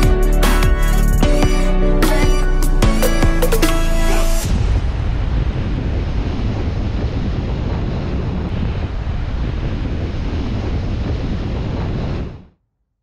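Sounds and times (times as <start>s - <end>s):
wind buffeting microphone: 4.4s - 12.6s.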